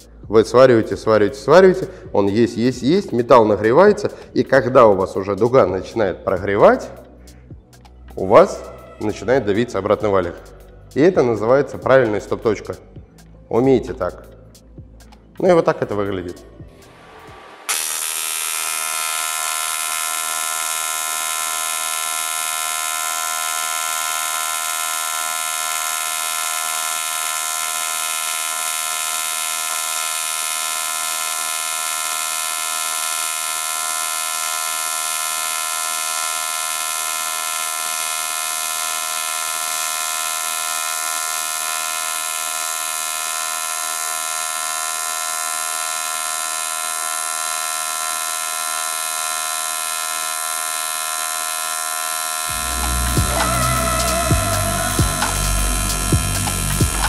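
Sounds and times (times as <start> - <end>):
welding arc buzzing: 16.8 - 57.0.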